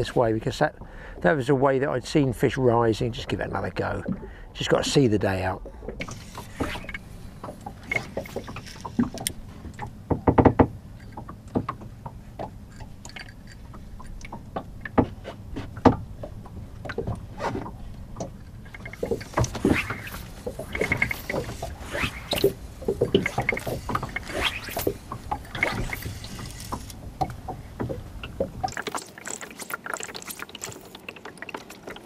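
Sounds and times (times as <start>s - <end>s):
water lapping against boat hull: 0.0s - 32.0s
knocks from wooden boat: 10.1s - 10.8s.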